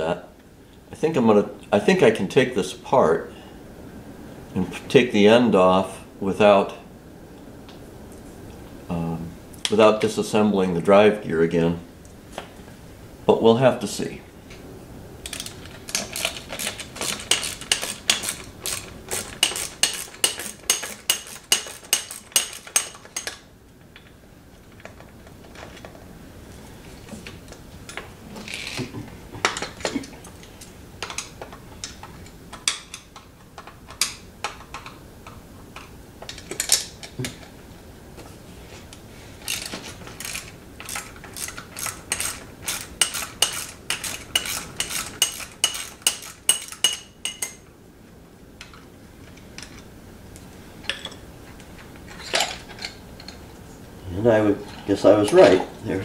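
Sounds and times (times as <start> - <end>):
ratchet clicking: 15.3 - 23.3, 39.5 - 47.5.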